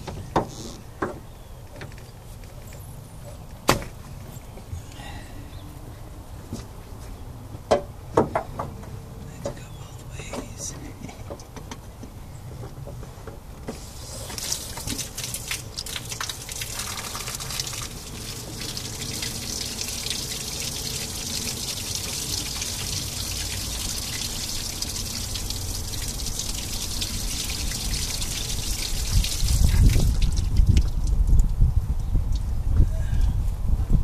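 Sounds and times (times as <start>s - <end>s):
water rushing through hose: 13.7s - 31.4s.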